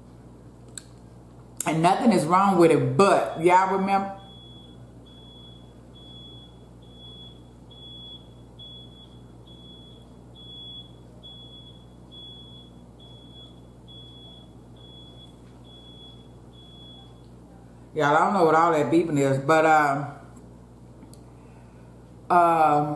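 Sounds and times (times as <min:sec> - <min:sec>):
electronic alarm beeping: 0:03.2 - 0:17.2.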